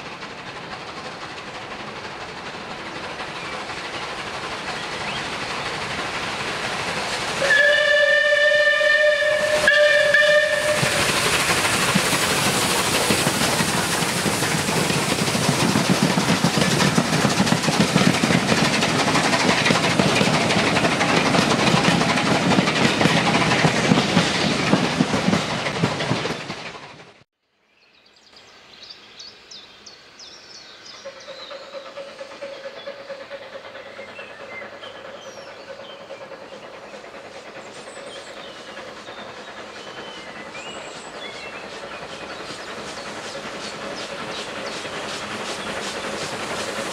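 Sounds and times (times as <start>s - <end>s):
train passing with exhaust and wheels: 0.0s - 27.3s, 28.0s - 46.9s
steam locomotive whistle: 7.4s - 11.6s.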